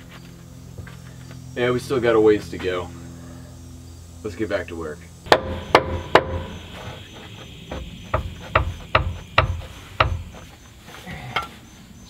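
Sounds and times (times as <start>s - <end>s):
hammer clanking on steel pins: 5.3s - 6.6s.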